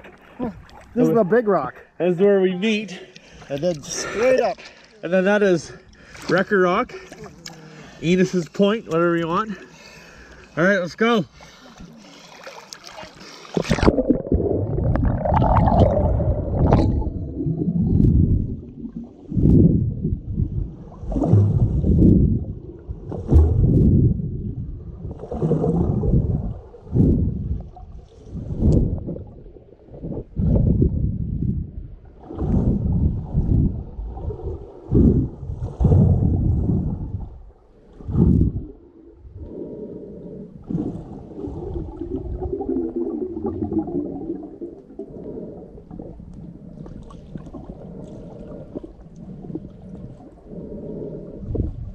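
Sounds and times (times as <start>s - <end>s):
muffled underwater water churning: 0.0s - 2.0s, 3.0s - 51.9s.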